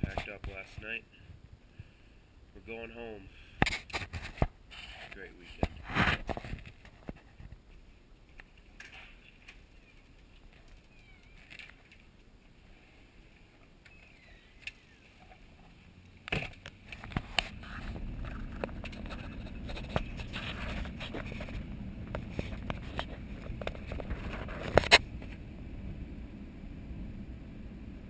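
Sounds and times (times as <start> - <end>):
truck driving on gravel: 15.4 - 28.0
stones clicking against vehicle: 16.0 - 25.4.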